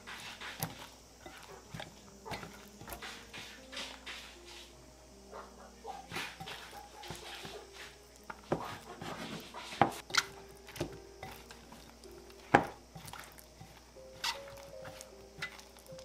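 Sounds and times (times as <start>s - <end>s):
soft wet rustling: 6.1s - 16.0s.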